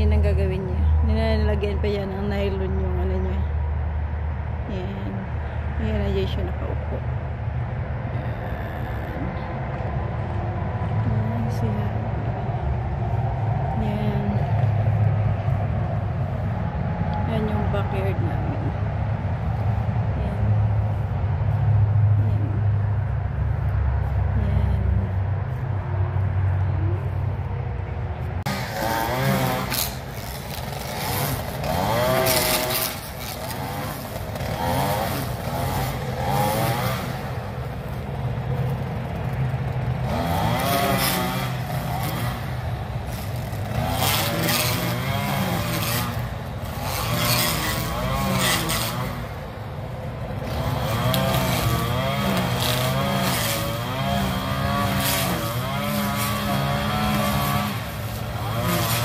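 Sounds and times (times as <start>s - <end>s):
string trimmer engine revving: 28.4s - 59.0s.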